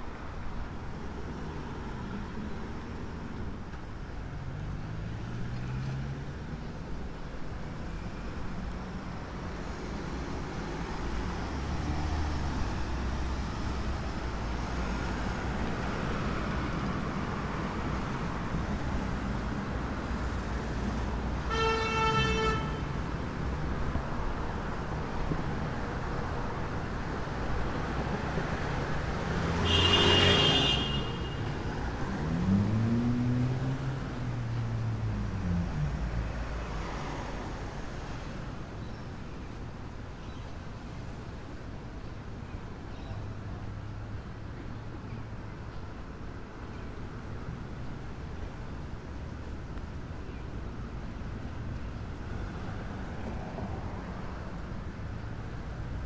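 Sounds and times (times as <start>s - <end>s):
car horn toot: 21.5s - 22.8s, 29.6s - 31.5s
cars driving past: 22.0s - 38.6s.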